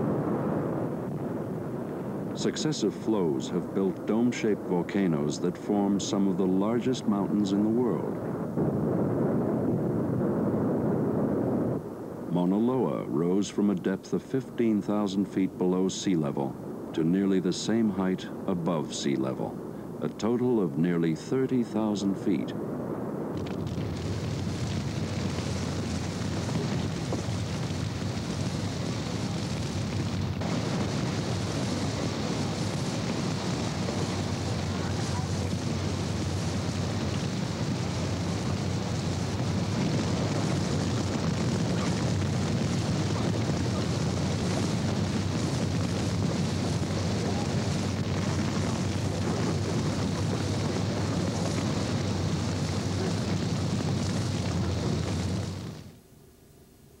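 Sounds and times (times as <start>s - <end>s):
buildings burning: 0.0s - 56.0s
rushing rumble of lava flow: 0.0s - 56.0s.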